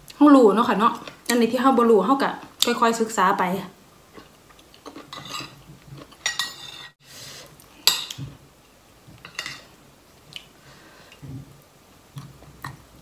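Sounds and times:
metal spoon clinking on bowl: 6.2s - 6.9s.

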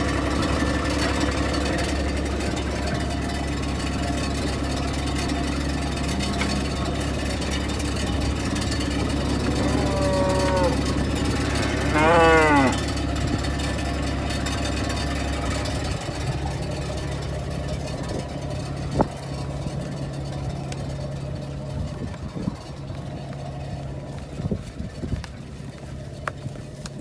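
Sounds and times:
engine idling hum: 0.0s - 27.0s
cow mooing: 8.6s - 13.0s.

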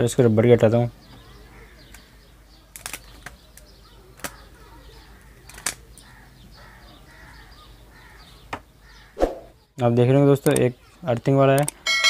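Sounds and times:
light rustling of wires: 2.7s - 4.5s.

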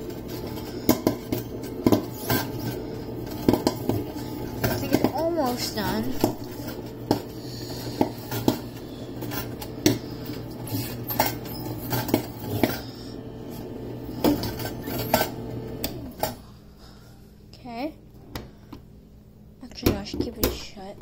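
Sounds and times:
popcorn popping: 0.0s - 16.4s
popcorn machine hum: 0.0s - 17.1s.

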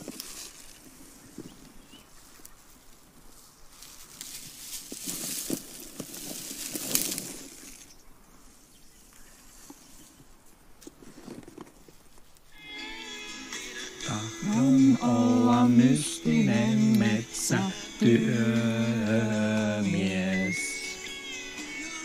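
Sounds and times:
ashes rustling and hissing: 0.0s - 8.7s
music: 12.6s - 22.0s.

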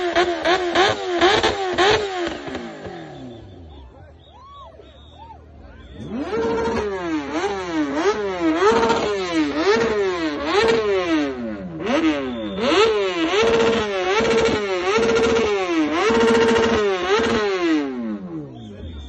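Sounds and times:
motorcycle engine revving: 0.0s - 3.8s, 5.9s - 19.0s.

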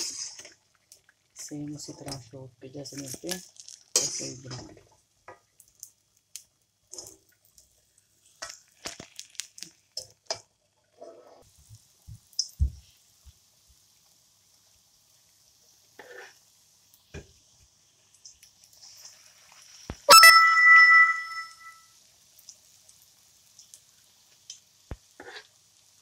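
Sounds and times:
metal spoon scraping a pan: 0.0s - 0.5s
hot oil sizzling: 0.0s - 26.0s.

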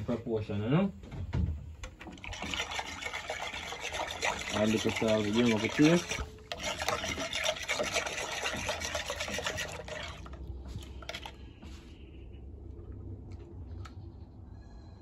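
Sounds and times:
low steady hum: 0.0s - 15.0s
utensil stirring in a pot: 1.9s - 11.4s.

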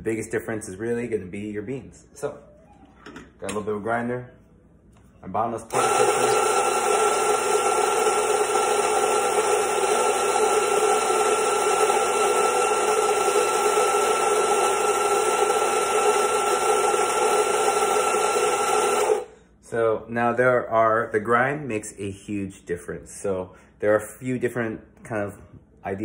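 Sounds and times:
electric coffee grinder running: 5.7s - 19.3s.

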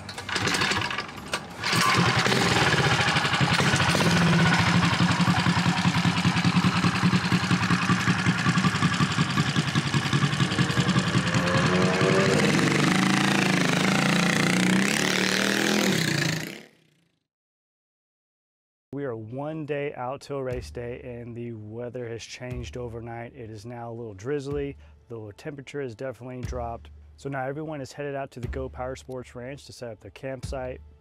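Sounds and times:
mini bike engine pull-started: 0.0s - 16.7s
small engine running and revving: 0.0s - 17.2s.

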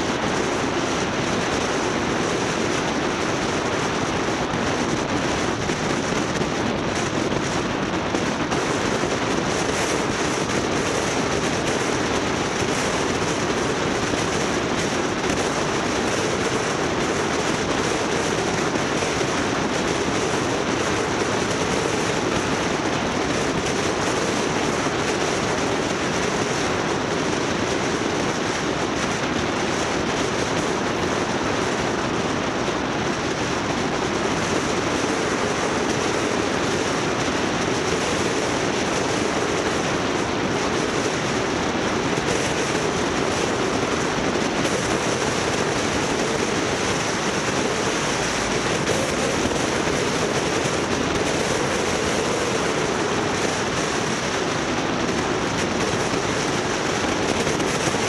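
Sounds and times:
vehicle road noise: 44.3s - 56.1s.

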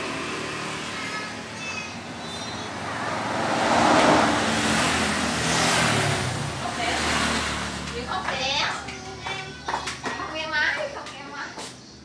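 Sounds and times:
vehicle engine and tyre noise: 0.0s - 9.2s.

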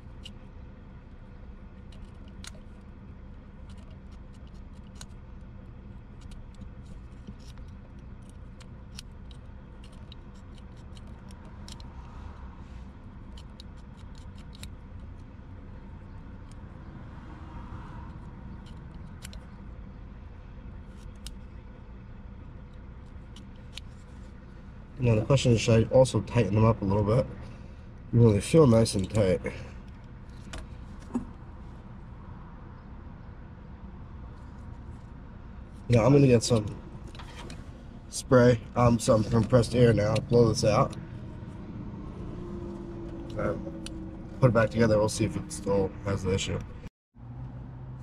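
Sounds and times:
steady low hum: 0.0s - 46.9s
file scratching metal terminals: 6.1s - 11.9s.

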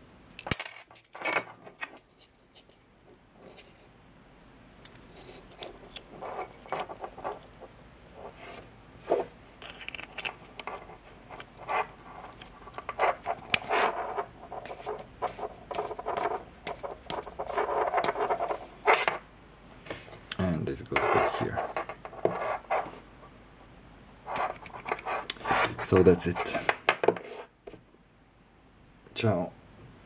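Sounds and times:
small parts clicking and scraping: 0.4s - 3.9s, 4.8s - 19.2s.

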